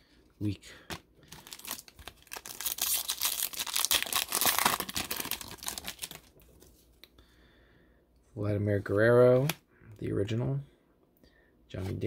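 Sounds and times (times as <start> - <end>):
foil wrapper tearing and crinkling: 1.4 - 6.3.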